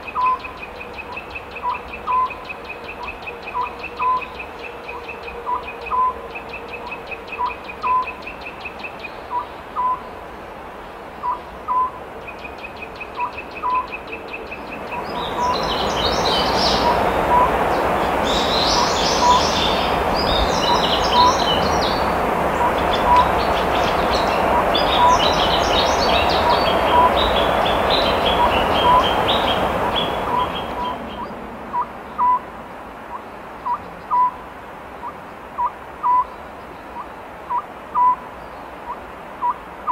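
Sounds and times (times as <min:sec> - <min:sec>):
owl hooting: 0:03.0 - 0:04.3, 0:04.9 - 0:06.2, 0:11.2 - 0:12.0, 0:16.7 - 0:17.6, 0:18.6 - 0:19.6, 0:22.6 - 0:23.3, 0:24.4 - 0:25.4, 0:26.2 - 0:27.3, 0:28.3 - 0:32.4, 0:33.6 - 0:34.4, 0:35.0 - 0:36.3, 0:37.5 - 0:38.2
rushing noise: 0:15.0 - 0:33.6
small bird chirping: 0:18.3 - 0:21.9, 0:22.6 - 0:32.4.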